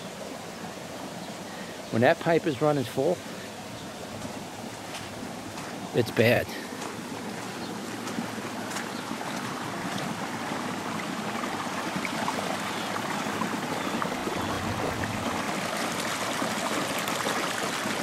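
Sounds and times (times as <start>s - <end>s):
water rushing over rocks: 6.7s - 18.0s.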